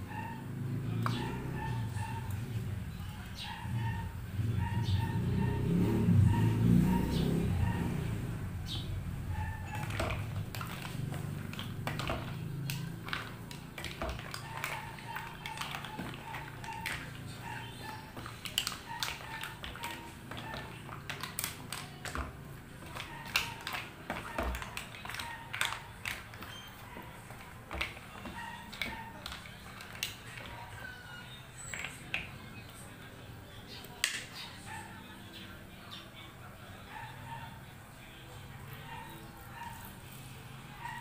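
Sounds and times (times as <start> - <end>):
mussel shells clacking: 9.7 - 31.0.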